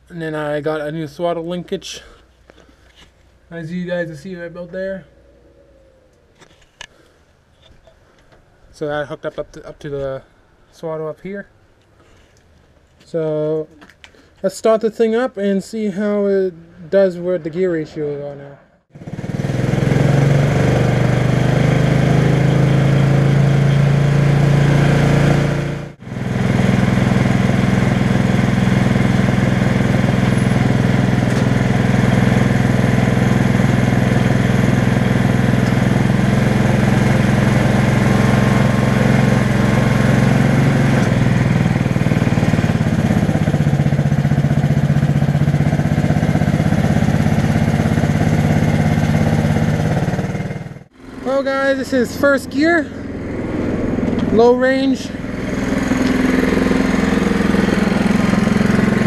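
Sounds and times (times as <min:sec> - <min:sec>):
single-cylinder engine running: 0:18.9 - 0:59.0.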